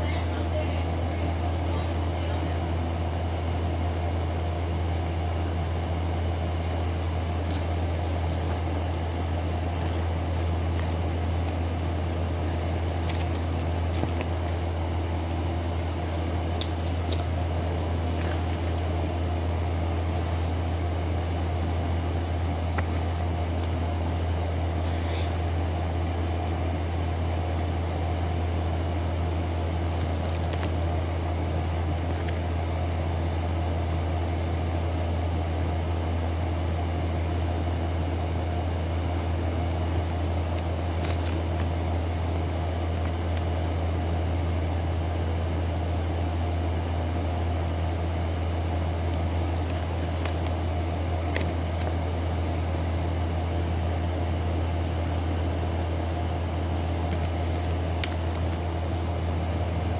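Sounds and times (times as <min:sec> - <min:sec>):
low mechanical hum: 0:00.0 - 0:59.9
plastic sticker sheets crinkling: 0:06.3 - 0:20.6, 0:22.6 - 0:25.4, 0:28.6 - 0:34.7, 0:39.7 - 0:43.8, 0:48.9 - 0:59.1.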